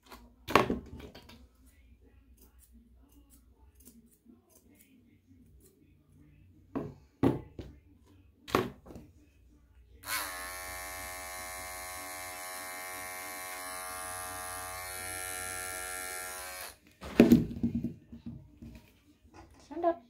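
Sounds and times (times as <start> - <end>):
grooming scissors snipping: 2.3 - 4.9
pet clipper buzzing: 10.0 - 16.8.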